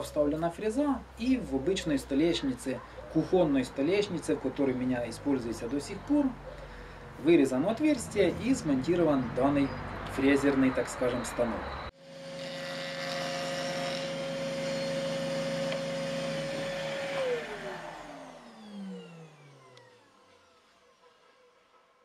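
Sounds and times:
electric motor whining: 12.0 - 20.8
motor spinning down: 12.0 - 21.1.

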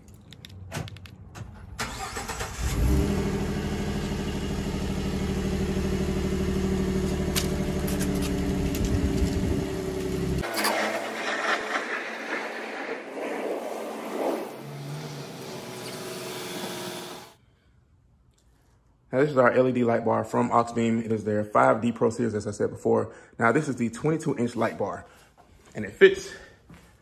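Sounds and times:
truck engine starting and idling: 0.7 - 12.0.

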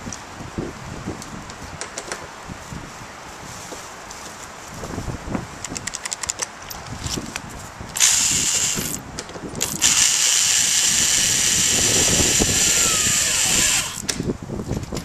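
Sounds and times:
electric drill driving screws: 8.0 - 9.0, 9.6 - 14.2.

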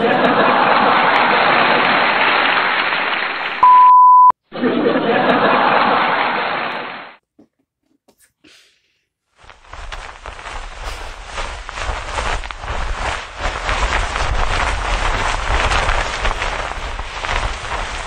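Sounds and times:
canned audience laughter: 0.0 - 2.3, 4.6 - 6.9
censor beep: 3.6 - 4.4.

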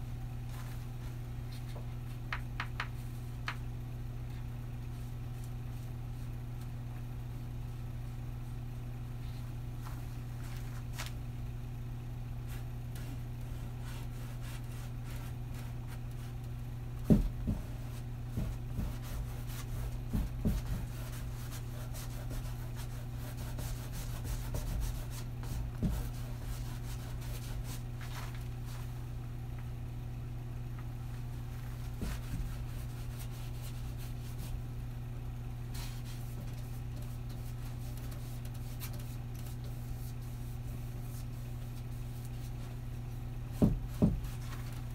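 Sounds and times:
low electrical hum: 0.0 - 44.9
paintbrush rubbing on canvas: 17.1 - 29.0, 31.5 - 34.6, 35.7 - 42.8.

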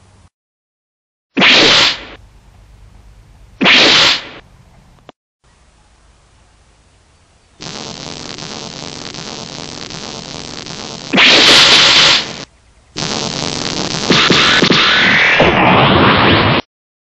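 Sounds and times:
electric crackle and static hiss: 7.6 - 16.6.

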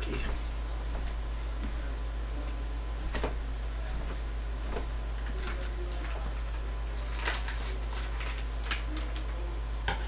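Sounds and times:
steady low hum: 0.0 - 10.0
packet rustling: 5.2 - 9.3.

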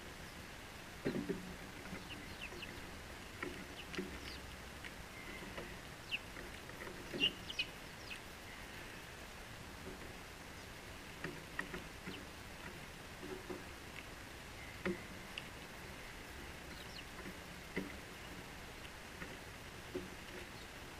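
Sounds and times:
sparrows chirping: 1.8 - 3.0, 3.7 - 4.5, 5.1 - 9.0, 16.6 - 17.2, 20.4 - 20.8.

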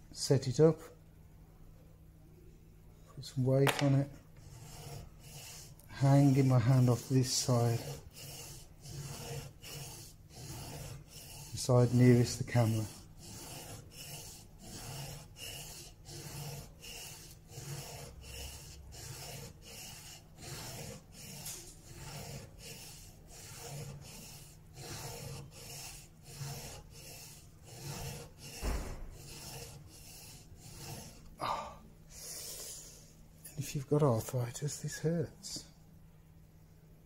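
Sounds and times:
chisel scraping on sharpening stone: 3.7 - 31.3.

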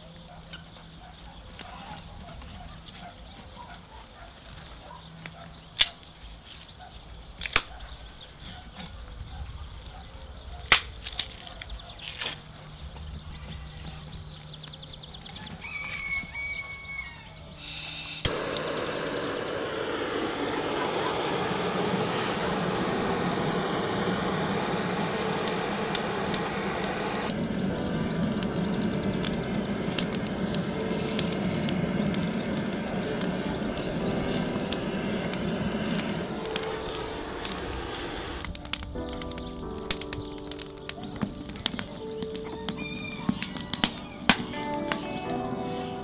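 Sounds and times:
gas torch hissing: 17.6 - 38.7.

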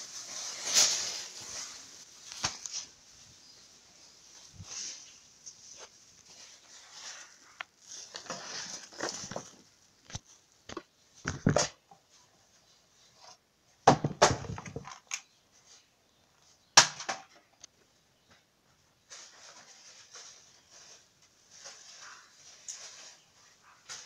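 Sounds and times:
faint rustling: 0.0 - 13.4, 17.8 - 24.0
handling knocks and rustles: 0.0 - 17.6, 18.2 - 24.0.

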